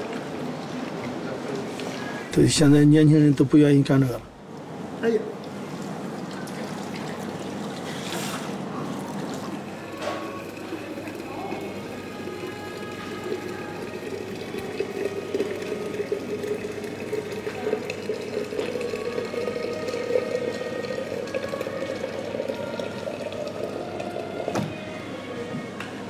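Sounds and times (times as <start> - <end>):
water filling a flask: 6.1 - 24.8.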